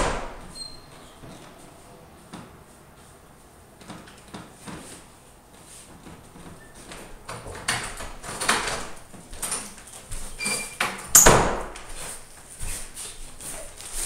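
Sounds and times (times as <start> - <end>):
loud thump: 0.0 - 0.5
brief squeak: 0.5 - 1.2.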